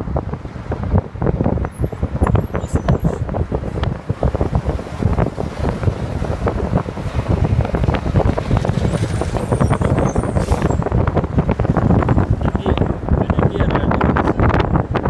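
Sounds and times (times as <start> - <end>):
minibuses passing: 0.0 - 13.4
street traffic: 0.0 - 15.0
wind buffeting microphone: 0.0 - 15.0.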